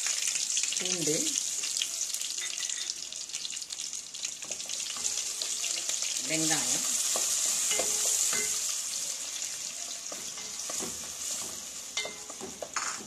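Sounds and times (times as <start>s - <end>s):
onions sizzling in oil: 0.0s - 13.0s
spoon scraping a pan: 2.4s - 3.0s, 6.9s - 13.0s.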